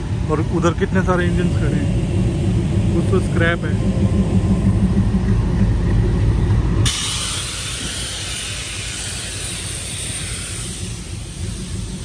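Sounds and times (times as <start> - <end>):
diesel locomotive engines idling: 0.0 - 12.0
steady hiss: 6.9 - 12.0.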